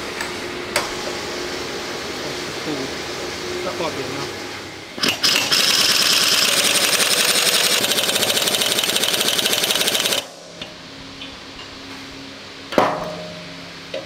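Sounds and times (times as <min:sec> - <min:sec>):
pneumatic impact wrench rattling: 0:05.0 - 0:10.4.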